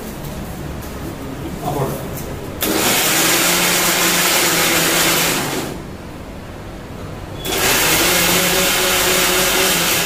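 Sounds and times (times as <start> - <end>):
mixer grinder motor running: 2.6 - 5.8, 7.4 - 10.0.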